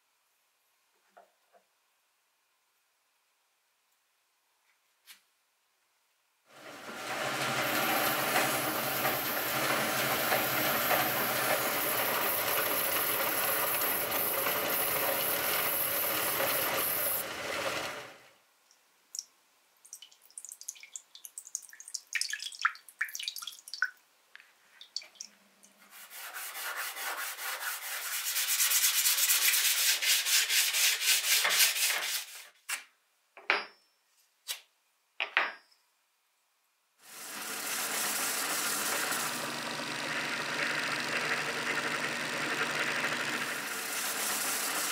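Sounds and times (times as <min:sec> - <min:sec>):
belt grinder running: 0:06.6 - 0:18.2, 0:37.1 - 0:44.9
water pouring and dripping on steel: 0:18.6 - 0:25.8
fast rubbing strokes: 0:25.8 - 0:32.5.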